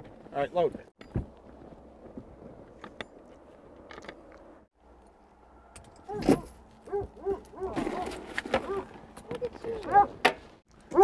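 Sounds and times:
dog yelping: 6.1s - 8.9s, 9.8s - 10.2s.

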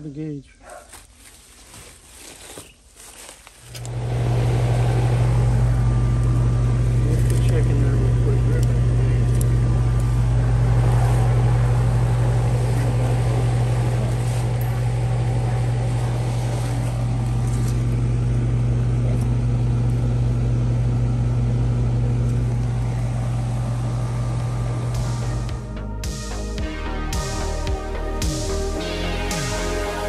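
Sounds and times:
air conditioner electrical hum: 3.2s - 25.8s.

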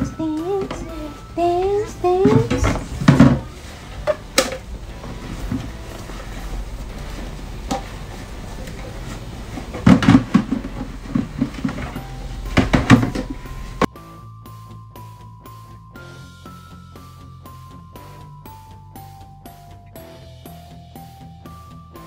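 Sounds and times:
background music: 0.0s - 22.0s
dishes clattering in sink: 2.2s - 5.7s, 8.8s - 13.9s.

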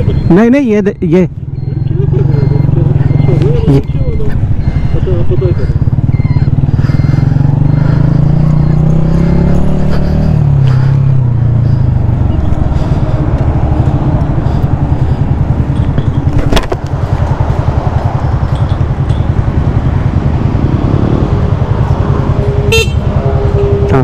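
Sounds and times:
motorcycle engine idling: 0.0s - 24.0s.

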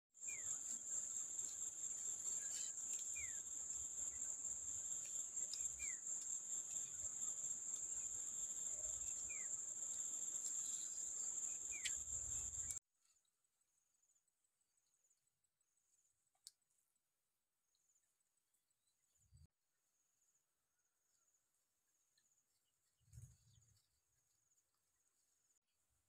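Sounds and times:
insects droning: 0.2s - 12.8s.

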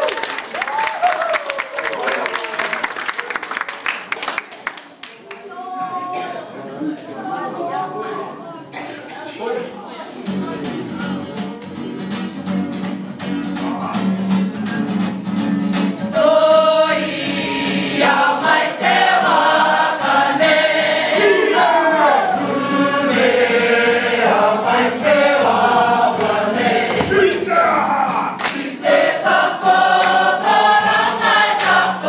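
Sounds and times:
group singing in unison: 16.0s - 32.0s.

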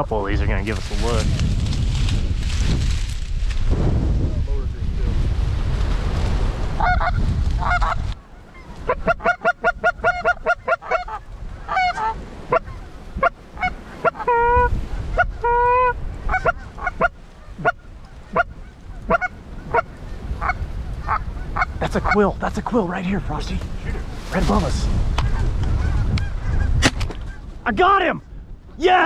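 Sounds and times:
wind buffeting microphone: 0.0s - 29.0s
goose call clucks and honks: 6.8s - 22.3s, 25.2s - 27.5s.

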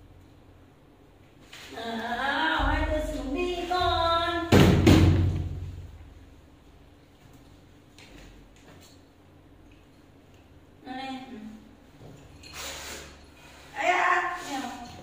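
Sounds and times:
loud thump: 4.5s - 5.8s.

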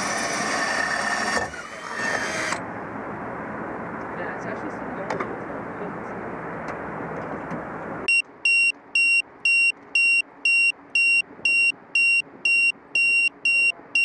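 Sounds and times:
high-pitched electronic beeping: 8.1s - 14.0s.

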